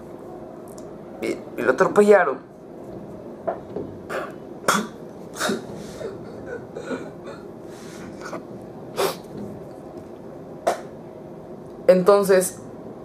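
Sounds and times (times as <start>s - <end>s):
boy sobbing: 5.4s - 7.5s
sharp sniffs: 7.7s - 8.2s, 9.0s - 9.2s.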